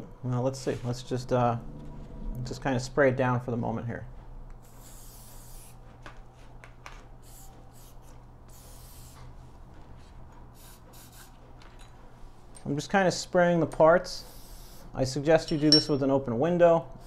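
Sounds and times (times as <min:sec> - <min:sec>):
aerosol can spray bursts: 0:04.6 - 0:05.8, 0:07.2 - 0:09.2, 0:10.6 - 0:11.4.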